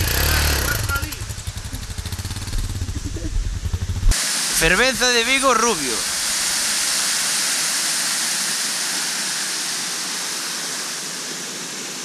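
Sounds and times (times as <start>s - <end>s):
waterfall rushing into pool: 4.1s - 12.0s.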